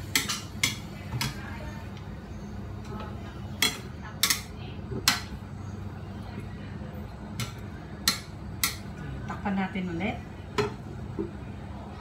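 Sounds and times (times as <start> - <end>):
metal spatula striking a wok: 0.0 - 1.4, 3.6 - 5.3, 7.4 - 8.8.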